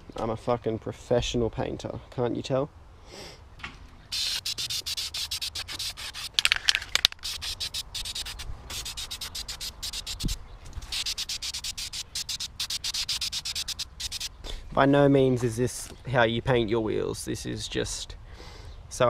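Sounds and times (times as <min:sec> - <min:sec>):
aerosol spray can hissing: 0:04.1 - 0:14.3.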